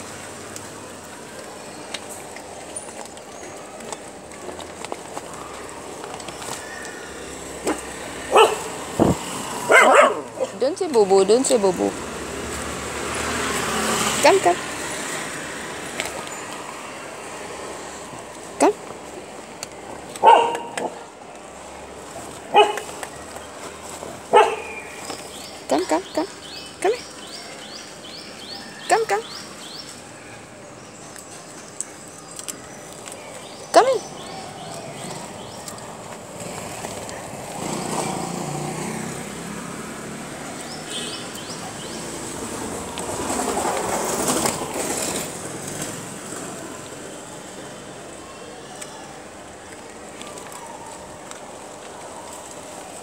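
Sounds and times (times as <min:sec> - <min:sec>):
dog barking: 0:08.3 - 0:08.8, 0:09.6 - 0:10.5, 0:20.2 - 0:21.0, 0:22.5 - 0:22.9, 0:24.3 - 0:24.8.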